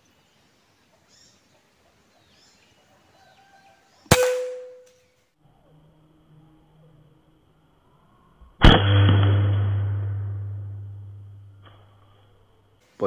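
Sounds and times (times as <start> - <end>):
air rifle shot: 4.1 - 4.9, 8.6 - 10.5.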